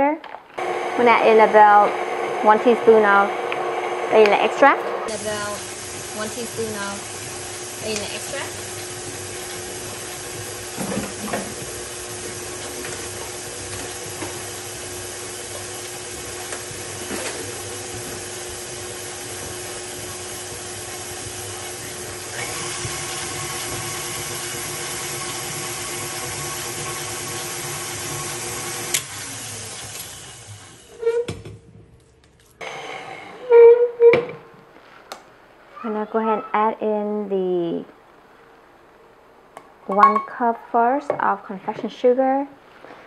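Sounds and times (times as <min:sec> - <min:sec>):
stand mixer running: 0:00.6 - 0:31.0.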